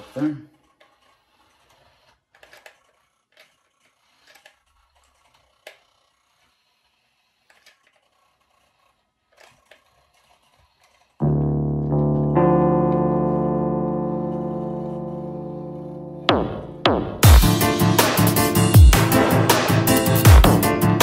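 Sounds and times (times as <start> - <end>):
small clicks and light scrapes: 0.0 - 11.2
piano music: 11.2 - 21.0.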